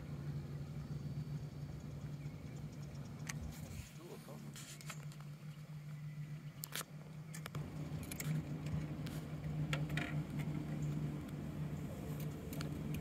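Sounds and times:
gear clicks and rattles: 6.7 - 10.9.

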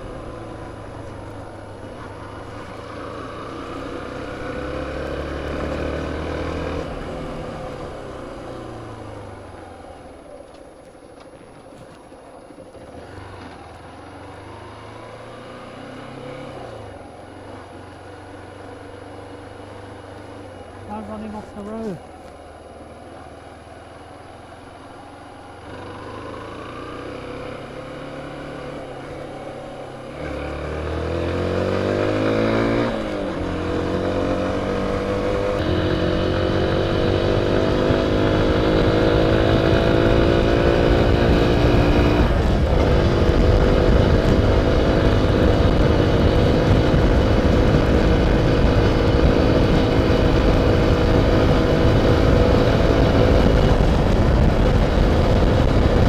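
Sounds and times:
motorcycle engine revving: 0.0 - 10.2, 12.7 - 56.0
wind noise on microphone: 34.3 - 56.0.

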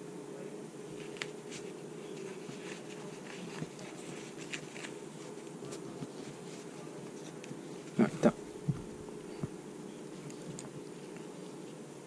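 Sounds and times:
low room hum: 0.0 - 12.0
cord rustling through plastic sheath: 1.0 - 9.4.

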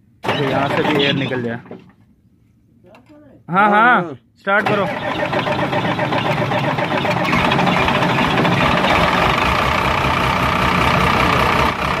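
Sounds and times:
diesel engine running: 4.6 - 12.0.

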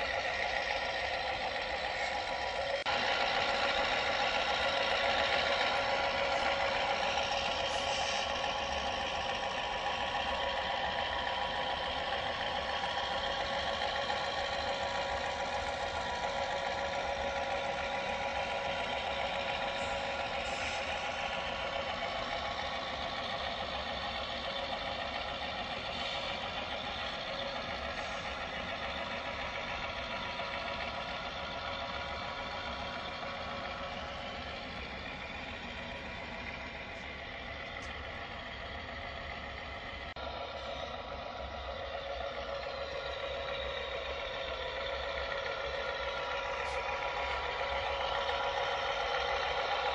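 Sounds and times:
recorded diesel engine sound: 0.0 - 49.9.

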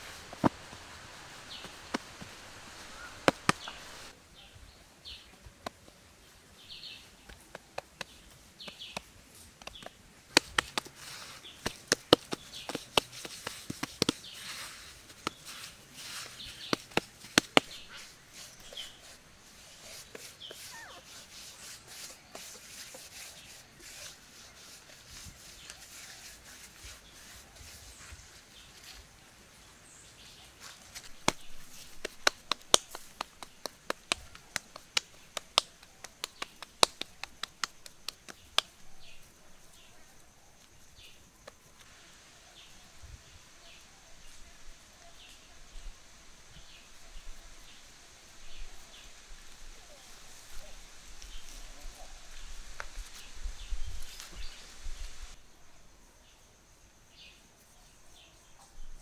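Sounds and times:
hands slapping wet mud: 3.2 - 3.9, 7.3 - 18.5, 31.0 - 38.8.

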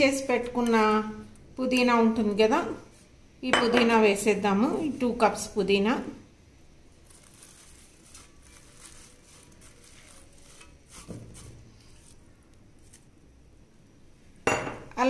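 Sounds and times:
leaves rustling into metal jar: 6.9 - 13.1.

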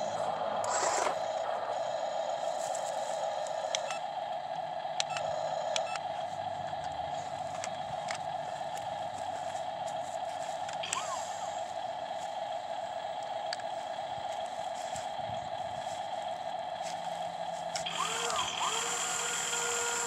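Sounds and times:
whine of small electric motors: 0.0 - 20.0.

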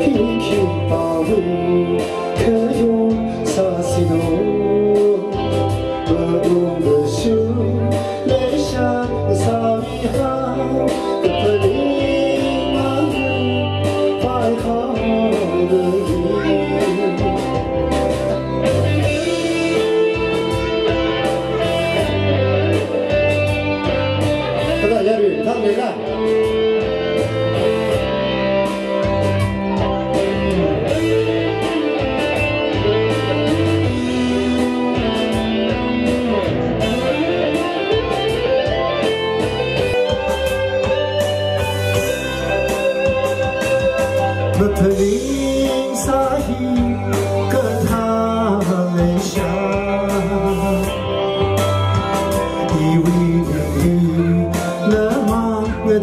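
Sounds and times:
man singing into microphone: 0.0 - 22.9, 42.0 - 56.0
guitar backing music with beat: 0.0 - 56.0.

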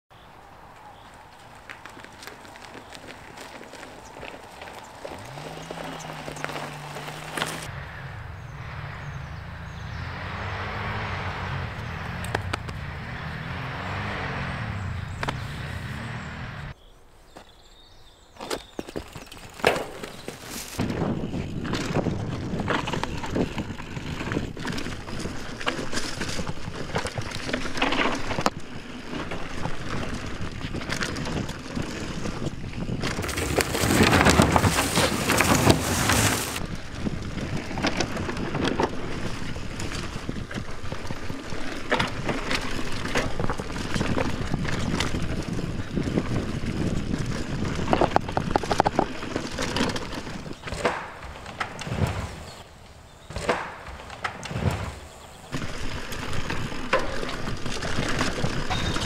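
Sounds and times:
bike tyres on dirt: 0.1 - 59.0
bike clattering over bumps: 1.4 - 7.7, 18.4 - 59.0.

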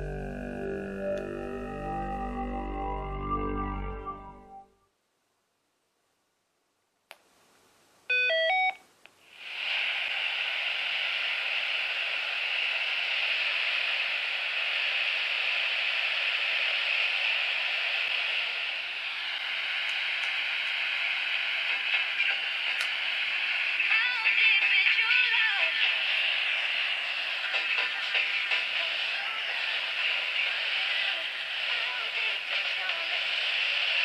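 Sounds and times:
radio static hiss: 9.1 - 34.0.

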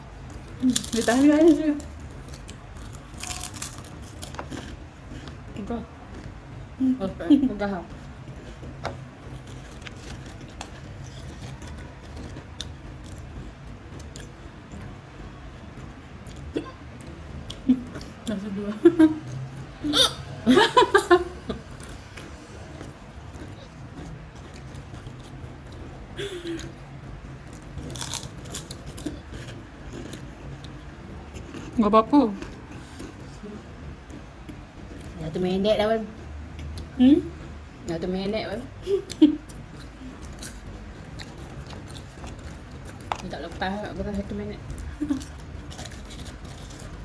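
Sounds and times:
steady low hum: 0.0 - 47.0
potato chips crackling: 0.6 - 4.8, 27.9 - 30.2.

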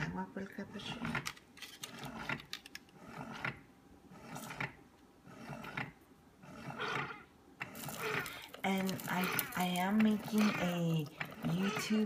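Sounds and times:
coffee brewer pump running: 6.7 - 12.0.

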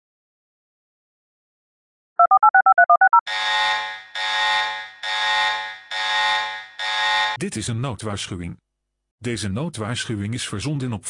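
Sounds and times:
buzzing alarm tones: 2.2 - 7.4.

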